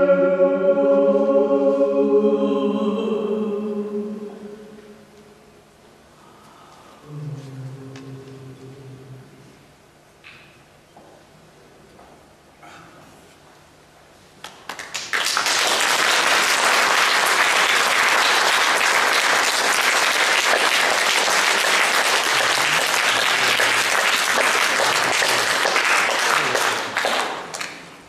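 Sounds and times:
audience applauding: 0:14.5 - 0:28.0.

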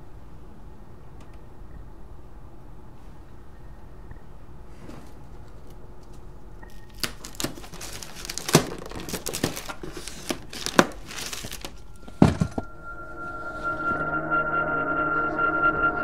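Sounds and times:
wrapping paper tearing: 0:06.7 - 0:11.9
eerie electronic tone: 0:11.8 - 0:16.0
heavy thump: 0:12.1 - 0:12.7.

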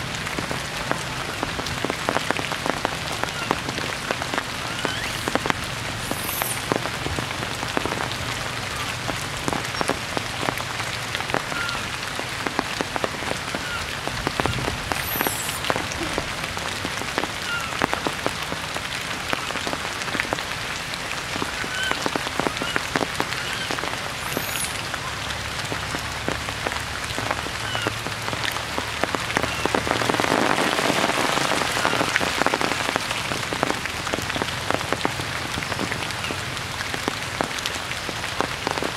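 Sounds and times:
heavy rain on foliage: 0:00.0 - 0:38.9
faint chirps: 0:06.0 - 0:06.7, 0:14.9 - 0:15.7, 0:23.5 - 0:24.9.

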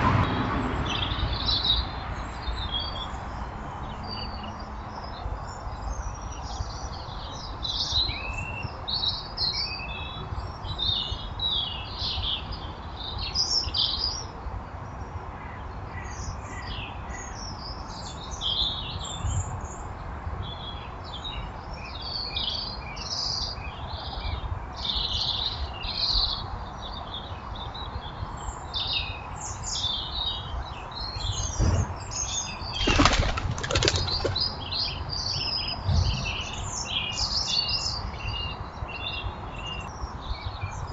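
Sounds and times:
small birds chirping: 0:16.2 - 0:40.9
bird wings flapping: 0:32.7 - 0:34.6.

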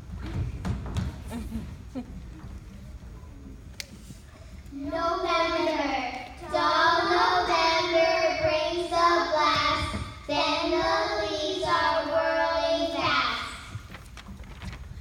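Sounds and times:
children singing together: 0:04.8 - 0:13.8.

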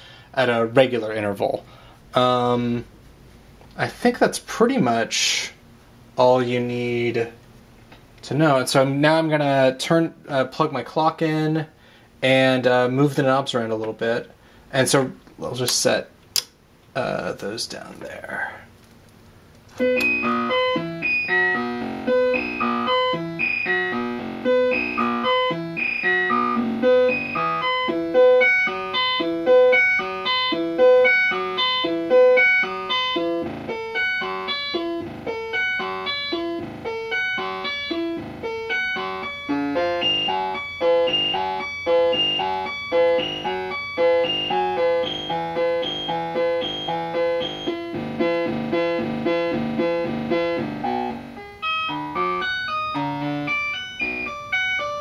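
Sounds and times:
synthesizer sequence of short notes: 0:19.8 - 0:55.0.

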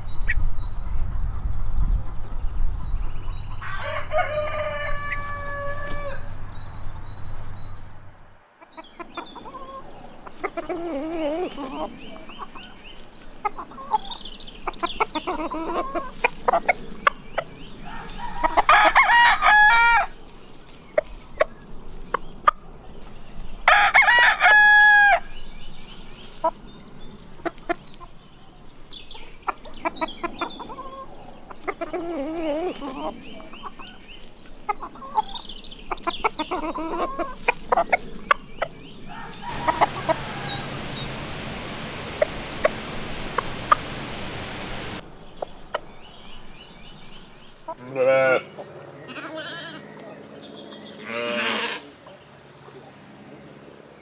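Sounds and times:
chickens clucking: 0:00.3 - 0:07.8, 0:08.6 - 0:24.7, 0:26.2 - 0:28.2, 0:29.1 - 0:46.5
rooster crowing: 0:03.6 - 0:06.4, 0:17.8 - 0:20.1, 0:23.7 - 0:25.3, 0:39.1 - 0:45.0
outdoor hiss: 0:39.1 - 0:47.6.

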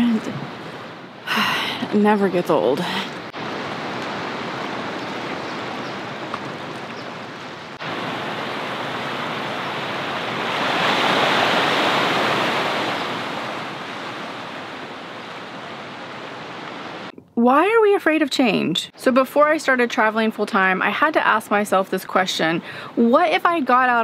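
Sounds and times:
ocean surf washing into rocks: 0:03.3 - 0:17.1.

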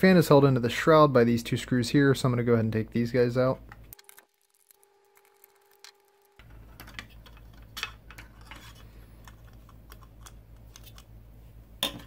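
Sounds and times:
plastic being handled: 0:03.8 - 0:11.1.

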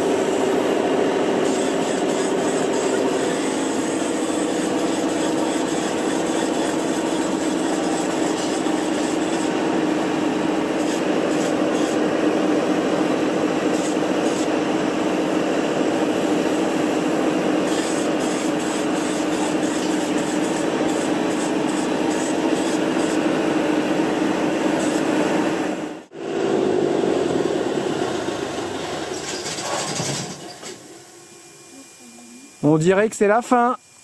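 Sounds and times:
machine hum: 0:00.0 - 0:34.0
foam spray hissing: 0:01.2 - 0:23.6.

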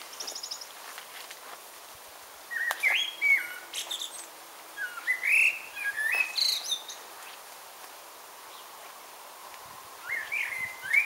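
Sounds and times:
songbird singing: 0:00.0 - 0:01.0, 0:02.4 - 0:07.6, 0:08.2 - 0:11.0.

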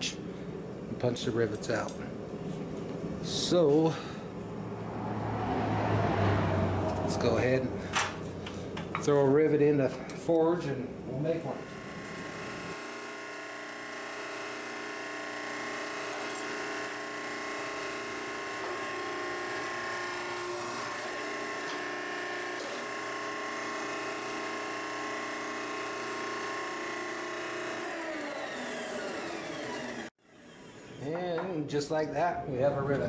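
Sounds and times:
hydraulic pump running: 0:11.1 - 0:31.2.

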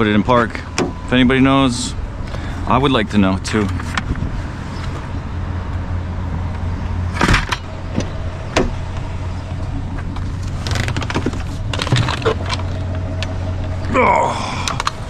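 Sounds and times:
truck engine idling: 0:00.0 - 0:15.0.

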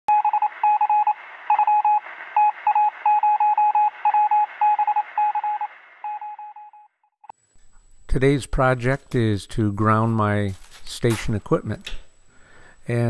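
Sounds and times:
morse code beeping: 0:00.1 - 0:06.9
radio static hiss: 0:00.5 - 0:03.2.

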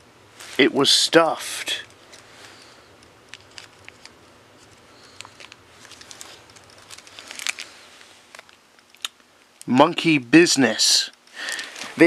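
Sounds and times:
plastic candy bag crinkling: 0:01.6 - 0:09.7, 0:11.0 - 0:12.0.

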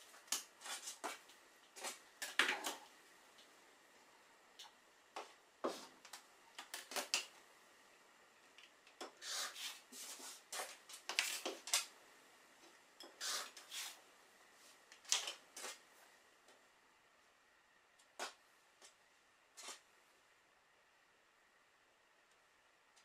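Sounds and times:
ruler and fabric rustling on mat: 0:00.1 - 0:02.0, 0:09.1 - 0:11.9, 0:13.2 - 0:14.0, 0:19.6 - 0:19.9.

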